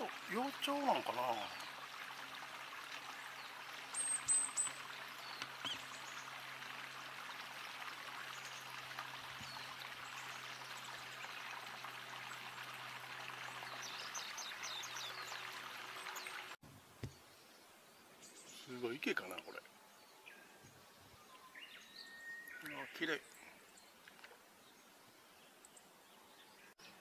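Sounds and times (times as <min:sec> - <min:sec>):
stream flowing: 0:00.0 - 0:16.6.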